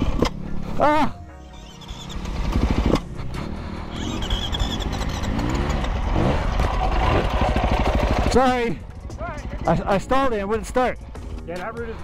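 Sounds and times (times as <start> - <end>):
dirt bike engine revving: 1.4 - 10.1.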